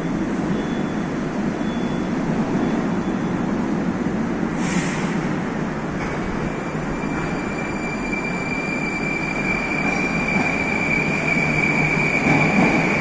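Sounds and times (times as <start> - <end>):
train rumble: 0.0 - 13.0
high squeal: 6.7 - 13.0.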